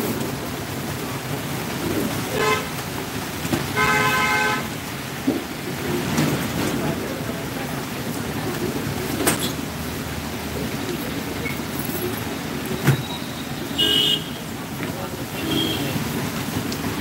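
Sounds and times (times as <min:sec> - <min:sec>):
heavy rain on a street: 0:00.0 - 0:17.0
vehicle horn honking: 0:02.4 - 0:02.7, 0:03.8 - 0:04.7, 0:13.8 - 0:14.4, 0:15.4 - 0:16.0.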